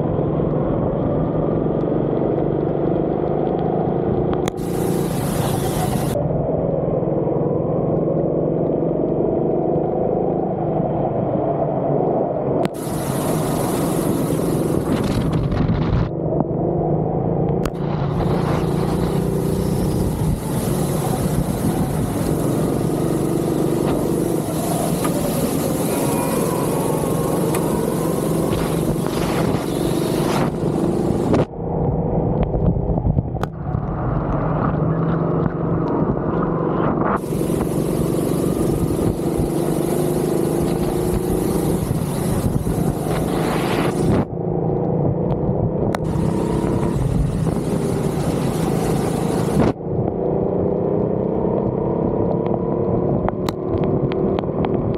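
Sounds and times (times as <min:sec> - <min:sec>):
go-kart engine revving: 0:04.4 - 0:06.2, 0:12.7 - 0:16.7, 0:17.6 - 0:31.5, 0:36.4 - 0:45.3, 0:45.9 - 0:51.5
high hiss: 0:04.5 - 0:06.2, 0:12.7 - 0:15.4, 0:17.7 - 0:31.5, 0:37.2 - 0:44.2.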